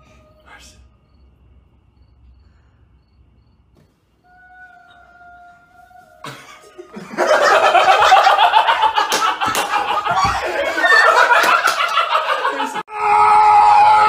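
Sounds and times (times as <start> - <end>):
people laughing and shrieking: 6.0 - 14.0.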